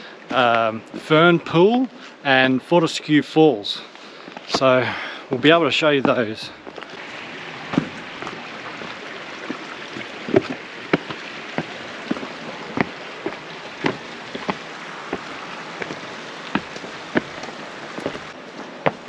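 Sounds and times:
running water hiss: 0.0 - 19.0
footsteps on rocky trail: 0.3 - 1.2, 4.0 - 5.1, 5.9 - 19.0.

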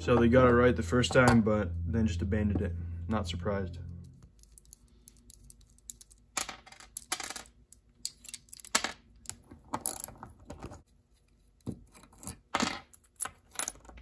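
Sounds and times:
small metal parts clinking: 4.4 - 10.3.

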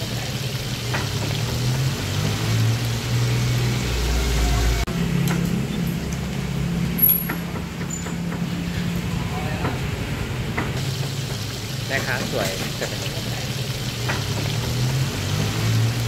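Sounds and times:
fish sizzling in hot oil: 0.0 - 4.8, 10.7 - 16.0
street-side hum: 0.0 - 16.0.

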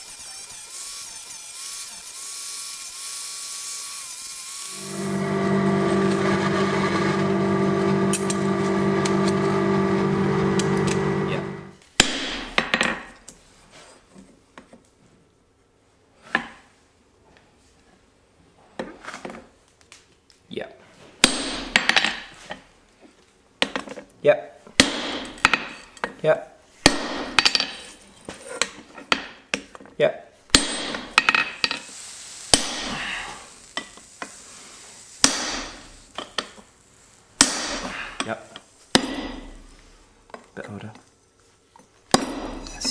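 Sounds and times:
hammer striking tool on anvil: 21.2 - 22.0, 26.8 - 27.8, 30.5 - 31.8, 35.2 - 35.8, 37.4 - 38.1, 39.0 - 39.6, 42.1 - 42.9.

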